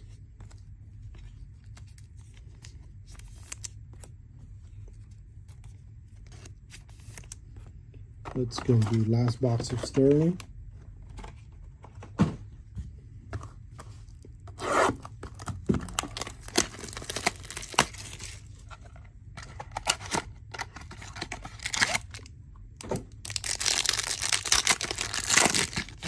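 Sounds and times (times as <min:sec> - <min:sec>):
packaging tearing and crinkling: 0:15.2 - 0:18.5, 0:19.6 - 0:22.3, 0:23.2 - 0:26.0.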